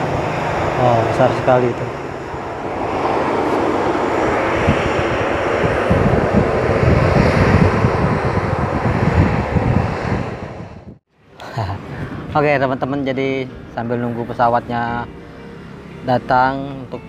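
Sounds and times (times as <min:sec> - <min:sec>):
jet airliner rolling on runway: 0:00.0 - 0:11.0.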